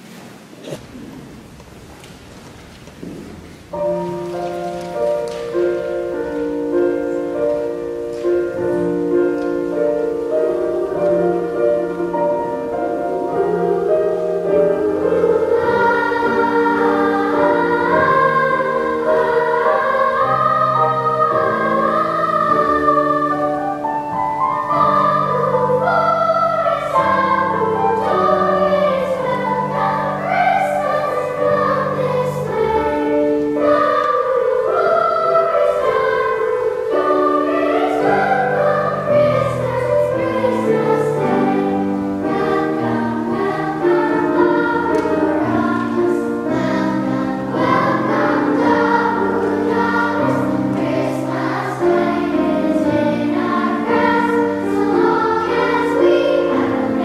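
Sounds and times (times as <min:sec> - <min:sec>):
piano accompaniment: 0:00.0 - 0:57.0
girls' choir singing: 0:03.0 - 0:57.0.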